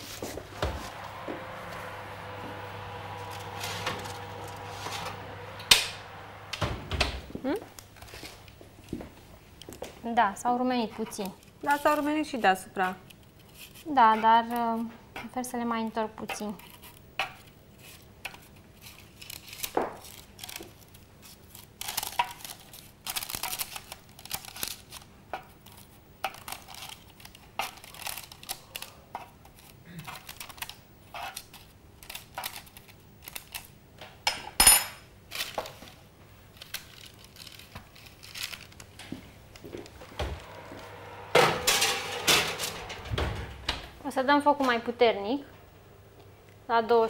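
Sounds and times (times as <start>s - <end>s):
baking paper rustling: 0.0s - 1.0s, 10.8s - 14.8s, 17.7s - 33.7s, 35.3s - 39.6s.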